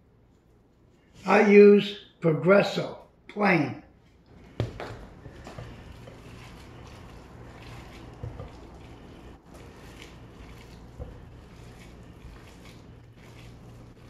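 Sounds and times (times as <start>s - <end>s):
wet squelching of kneaded meat: 4.0s - 14.0s.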